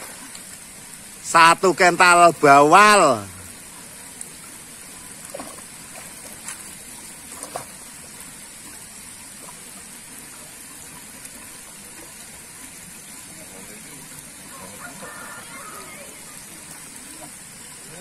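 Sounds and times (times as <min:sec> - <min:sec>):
pond water splashing: 0:00.0 - 0:18.0.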